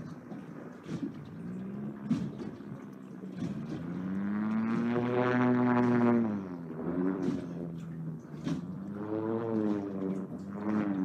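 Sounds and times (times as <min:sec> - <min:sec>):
engine passing by: 0:00.0 - 0:11.0.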